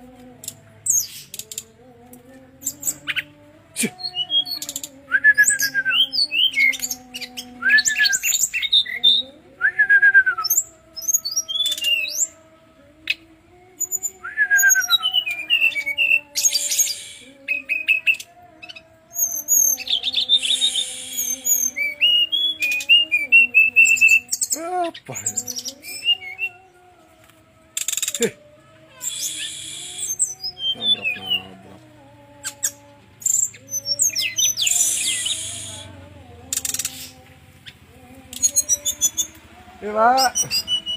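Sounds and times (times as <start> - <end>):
bird singing whistles and trills: 4.0 - 12.4, 13.8 - 26.7, 27.8 - 28.2, 29.0 - 31.6, 32.4 - 35.9, 36.5 - 39.4, 40.2 - 40.9.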